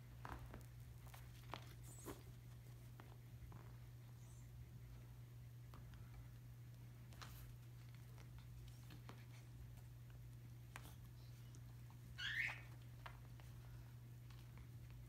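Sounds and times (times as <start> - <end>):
taps and rustles on carpet: 0.0 - 4.1
steady low hum: 0.0 - 15.0
short high wavering squeak: 12.2 - 12.6.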